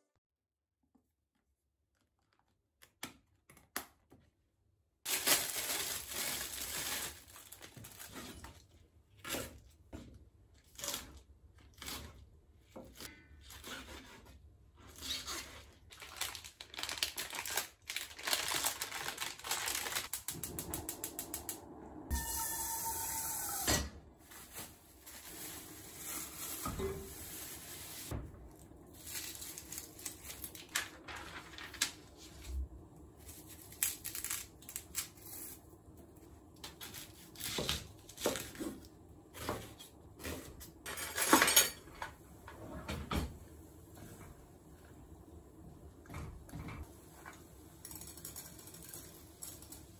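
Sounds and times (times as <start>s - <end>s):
pots and utensils clinking: 40.8s - 42.2s.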